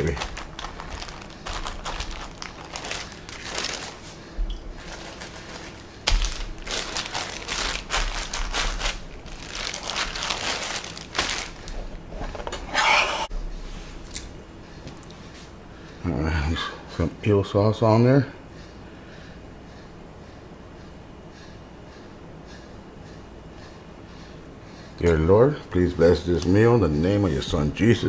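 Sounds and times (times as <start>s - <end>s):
plastic wrap crinkling: 0.0s - 12.5s.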